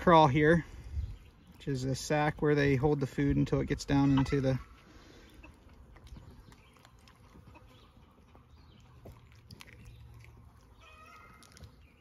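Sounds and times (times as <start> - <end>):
fingers tearing chicken skin: 9.1 - 11.8.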